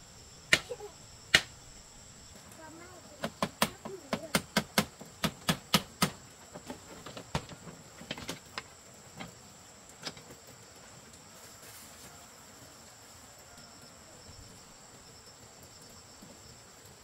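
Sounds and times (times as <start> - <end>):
high insect trill: 0.0 - 17.0
sharp knocks on wood: 3.2 - 6.2.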